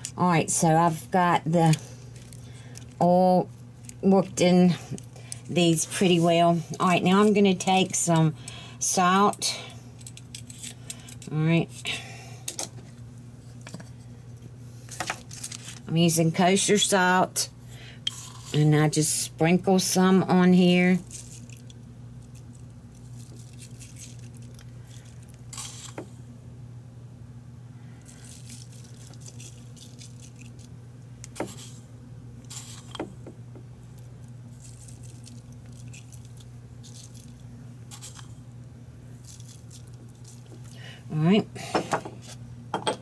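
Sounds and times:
steady low hum: 0.0s - 43.0s
salt grains pattering: 21.0s - 26.0s, 27.9s - 31.8s, 33.8s - 38.4s, 39.1s - 40.8s.

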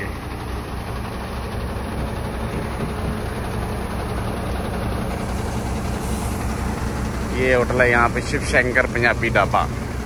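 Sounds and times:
truck diesel engine idling: 0.0s - 10.0s.

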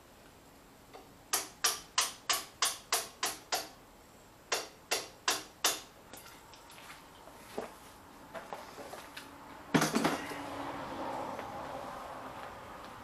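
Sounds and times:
hammer striking steel: 4.5s - 6.3s.

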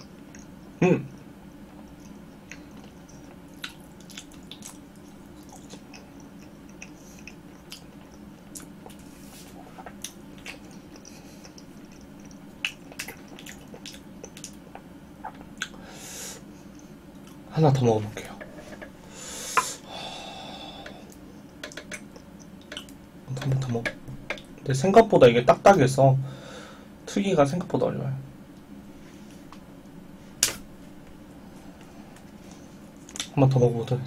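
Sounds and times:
chewing jelly: 1.7s - 15.8s
wet mouth clicks and smacks: 1.9s - 9.1s, 9.8s - 15.8s, 30.4s - 30.6s
breathy hiss: 15.8s - 17.0s, 18.2s - 21.5s, 26.2s - 27.0s.

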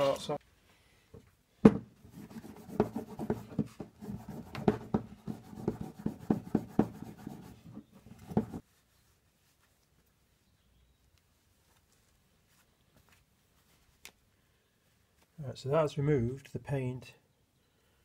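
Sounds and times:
steel wool scrubbing metal: 2.1s - 8.6s.

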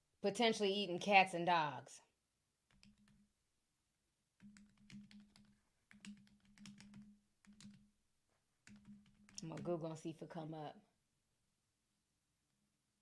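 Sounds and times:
typing on computer keyboard: 2.7s - 3.2s, 4.4s - 7.8s, 8.6s - 9.7s.

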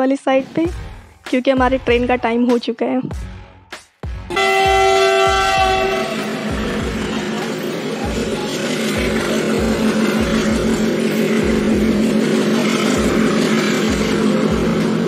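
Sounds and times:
locomotive humming: 4.3s - 15.0s.

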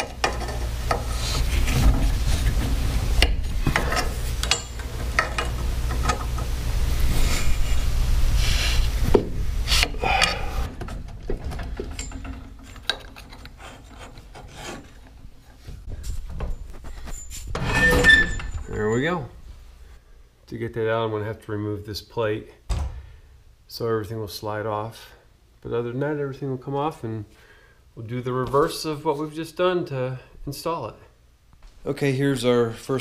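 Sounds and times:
metal scraping and clicking: 0.0s - 6.5s, 9.8s - 15.4s.

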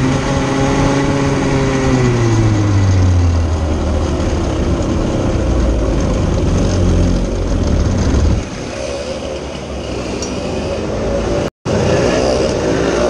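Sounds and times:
two-stroke kart engine running: 0.0s - 13.0s.

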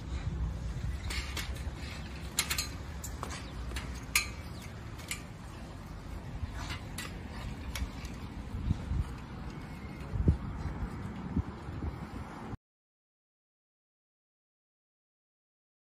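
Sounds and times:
bicycle chain ticking and rattling: 0.0s - 11.6s
wheels rumbling on paving stones: 0.0s - 12.5s.

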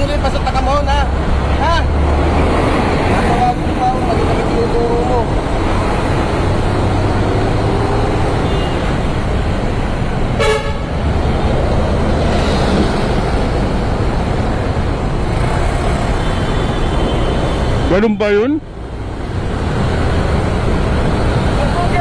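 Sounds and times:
road traffic: 0.0s - 22.0s
vehicle horn toot: 8.4s - 8.9s, 10.4s - 10.9s.

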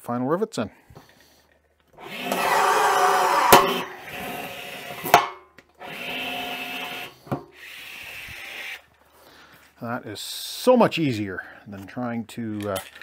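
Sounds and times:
rivet tool motor whirring: 2.0s - 5.2s, 5.8s - 8.8s.

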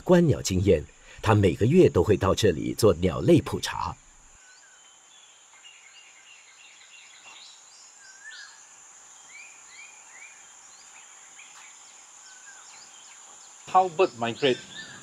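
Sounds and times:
high-pitched insect hum: 0.0s - 15.0s
birds chirping and whistling: 11.4s - 15.0s.

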